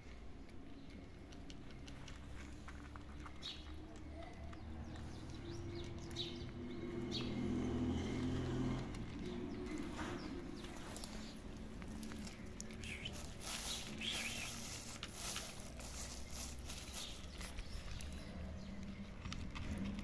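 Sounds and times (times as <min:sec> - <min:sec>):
kittens crunching dry kibble: 0:00.0 - 0:20.0
plastic bag rustling: 0:09.8 - 0:18.3.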